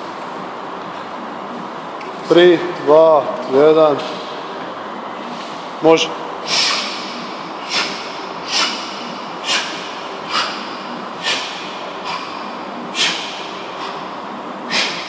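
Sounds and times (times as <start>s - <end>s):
man's hissing exhalations: 6.5s - 7.0s.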